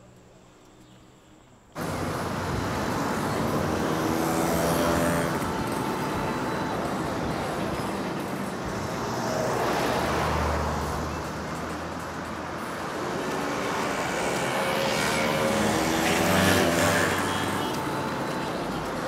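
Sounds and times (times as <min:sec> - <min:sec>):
passing vehicles rushing: 0:01.8 - 0:19.0.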